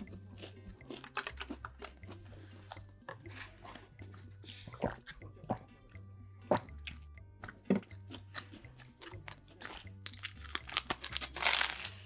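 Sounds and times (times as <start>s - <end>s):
background music with bass line: 0.0s - 12.0s
chewing and mouth sounds: 0.0s - 12.0s
crunchy bite into toast: 10.1s - 12.0s.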